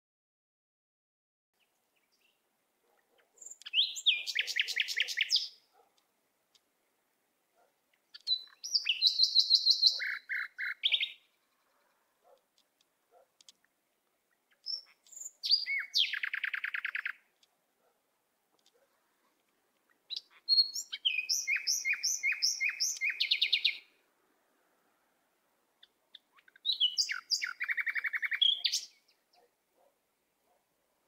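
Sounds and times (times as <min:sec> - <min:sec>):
songbird trilling and whistling: 0:03.4 - 0:05.6, 0:08.1 - 0:11.3, 0:14.5 - 0:17.2, 0:20.1 - 0:23.9, 0:25.8 - 0:29.1.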